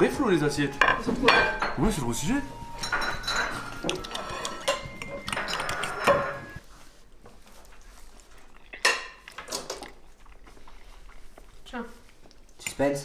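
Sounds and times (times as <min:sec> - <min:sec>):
cutlery scraping a ceramic plate: 0:02.8 - 0:06.6.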